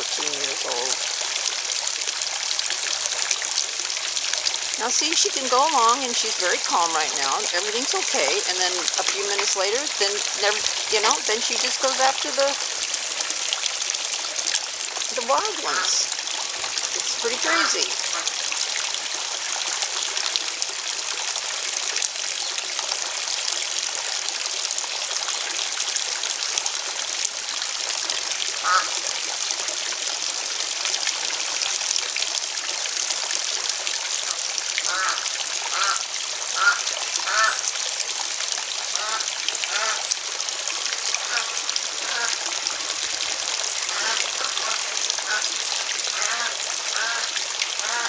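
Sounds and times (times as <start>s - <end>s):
water trickling: 0.0s - 48.0s
ducks quacking: 15.2s - 16.1s, 17.0s - 18.3s, 43.9s - 45.5s, 46.2s - 48.0s.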